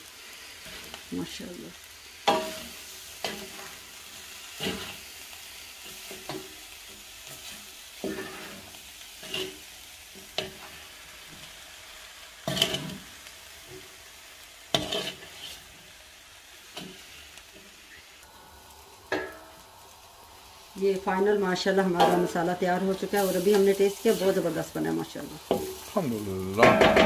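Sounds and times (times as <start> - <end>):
meat filling sizzling in a pan: 0.0 - 27.0
spatula scraping and knocking pan: 25.5 - 25.9, 26.6 - 27.0.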